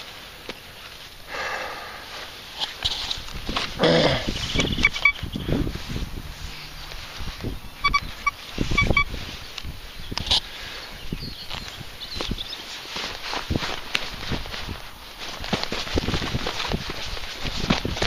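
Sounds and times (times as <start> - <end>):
metal detector short high beeps: 4.6 - 5.2, 7.7 - 9.2
falling pitched sound: 4.9 - 9.2
thuds and rustling of soil: 11.5 - 18.0.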